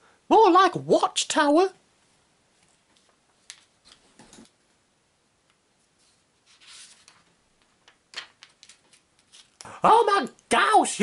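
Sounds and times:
book pages rustling: 0:02.6 - 0:04.6, 0:05.8 - 0:09.7.

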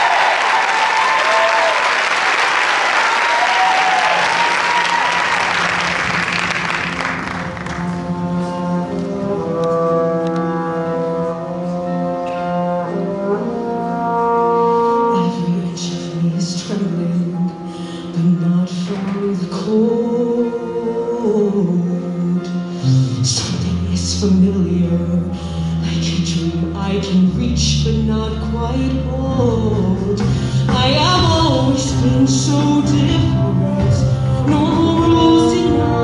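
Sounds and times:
audience applause and cheering: 0:00.0 - 0:08.1
live band playing held chords: 0:00.0 - 0:13.3, 0:29.4 - 0:36.0.

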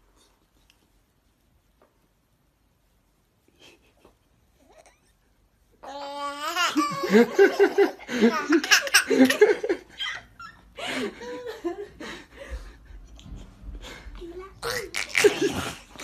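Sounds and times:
baby giggling: 0:05.9 - 0:09.8, 0:14.6 - 0:16.0.

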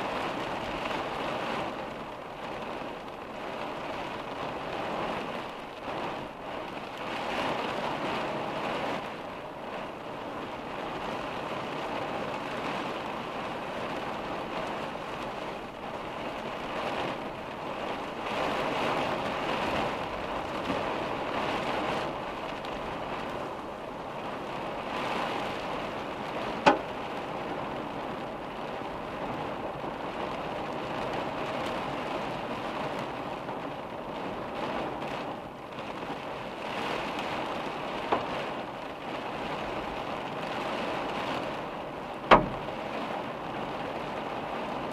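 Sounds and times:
rain on car windshield: 0:00.0 - 0:44.9.

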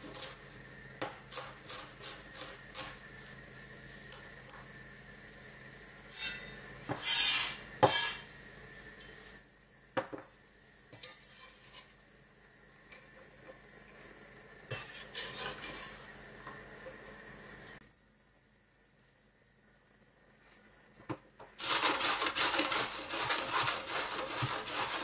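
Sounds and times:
knife scraping cutting board: 0:06.1 - 0:08.2, 0:11.0 - 0:11.9, 0:14.7 - 0:16.0, 0:21.6 - 0:25.0.

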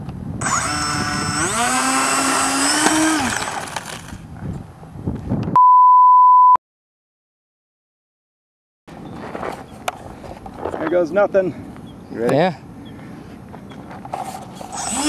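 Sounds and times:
ducted fans whining: 0:00.1 - 0:04.4, 0:14.5 - 0:15.0
loud single-pitch beep: 0:05.6 - 0:06.6.

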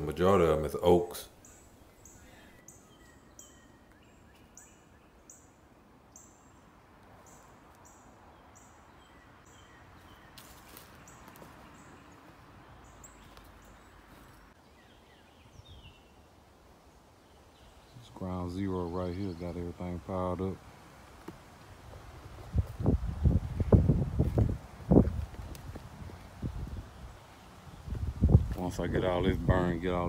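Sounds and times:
bird chirping: 0:00.0 - 0:16.3, 0:16.9 - 0:20.5
low steady rush of noise: 0:00.0 - 0:30.0.

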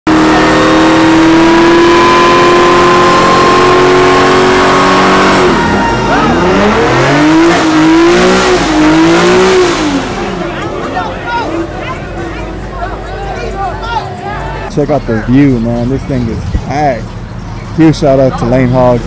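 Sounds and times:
car engine revving high: 0:00.1 - 0:11.4.

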